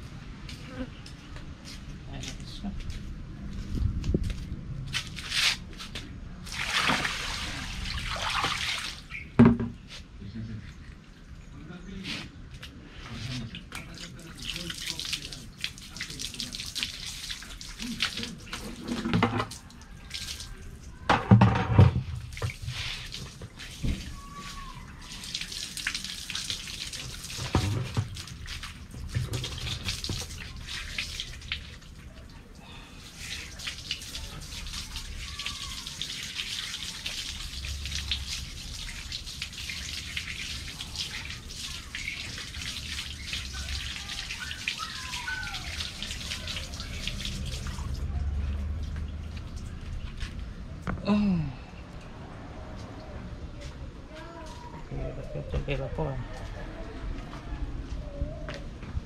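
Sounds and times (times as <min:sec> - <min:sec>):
hose water splashing into bucket: 0:06.4 - 0:09.5, 0:13.0 - 0:50.4.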